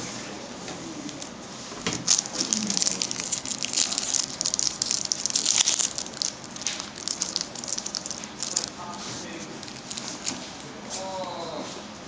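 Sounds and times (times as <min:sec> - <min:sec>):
foil wrapper crinkling: 0:02.0 - 0:10.6.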